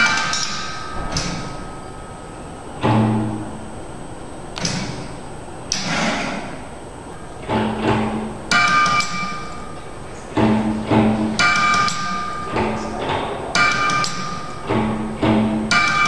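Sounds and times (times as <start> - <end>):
motor-driven hammers knocking: 0.0 - 3.7, 4.5 - 6.8, 7.4 - 16.0
short ringing pitched tones: 0.0 - 4.1.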